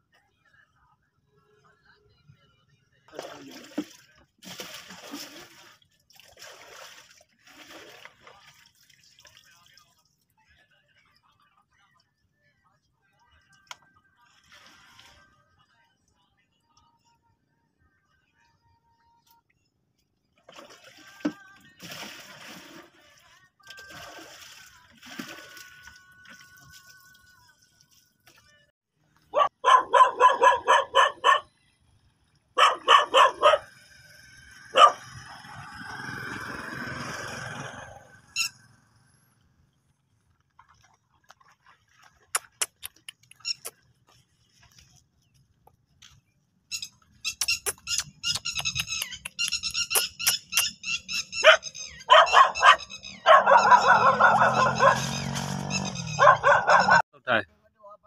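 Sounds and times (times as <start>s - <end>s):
dogs barking: 29.2s - 31.5s, 32.5s - 33.8s, 34.5s - 35.5s, 51.2s - 57.0s.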